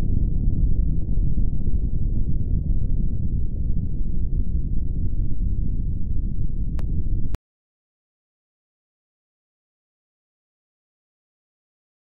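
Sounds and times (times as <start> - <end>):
deep explosion rumble: 0.0 - 7.4.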